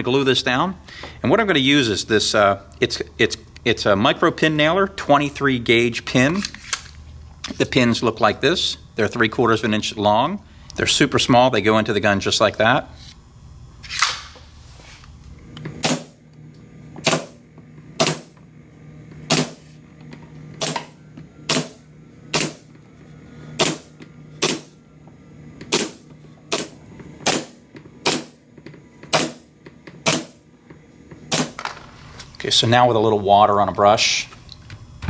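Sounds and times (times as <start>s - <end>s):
pin nailer snapping: 15.8s - 16.2s, 17.0s - 17.4s, 18.0s - 18.3s, 19.3s - 19.6s, 20.6s - 20.9s, 21.5s - 22.6s, 23.6s - 24.7s, 25.7s - 28.4s, 29.1s - 29.4s, 30.0s - 30.4s, 31.3s - 31.7s.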